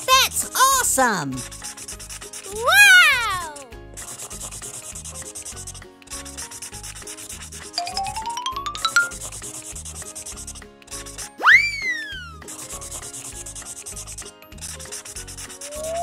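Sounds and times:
marker rubbing on paper: 0.6s - 7.8s, 9.1s - 11.3s, 12.5s - 16.0s
background music with steady beat: 3.8s - 11.3s
sparkly chime notes: 7.8s - 9.2s
swooping sound effect: 15.6s - 16.0s.

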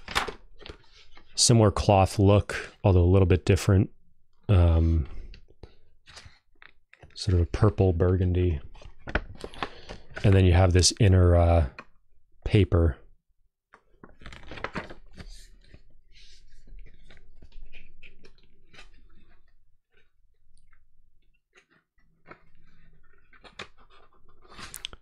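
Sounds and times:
book pages rustling: 0.0s - 1.4s, 5.3s - 7.8s, 8.5s - 10.6s, 13.8s - 20.8s, 21.5s - 25.0s.

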